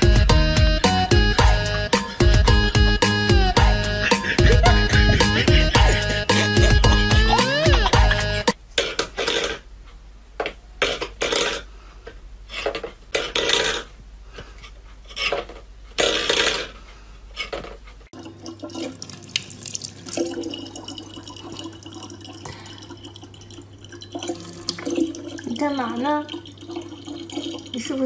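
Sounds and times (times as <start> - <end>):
water running into plastic bottle: 18.2 - 28.0.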